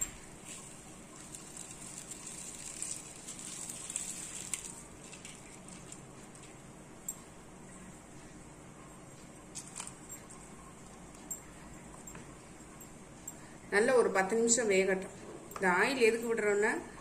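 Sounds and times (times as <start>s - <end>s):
water boiling in a saucepan: 0.0s - 6.7s.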